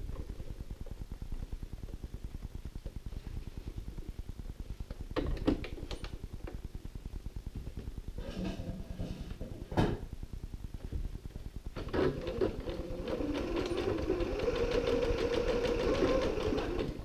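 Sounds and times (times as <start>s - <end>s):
sewing machine stitching: 11.8s - 17.0s.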